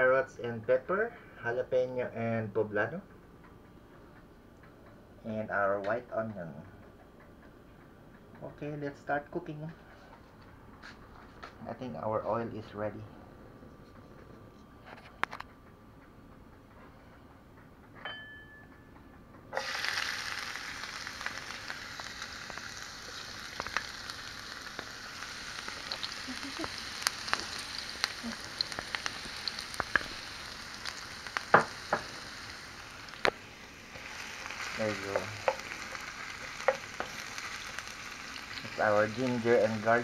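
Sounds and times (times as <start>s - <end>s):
garlic sizzling in hot oil: 19.6s - 40.0s
wooden spoon tapping pan: 35.1s - 37.5s.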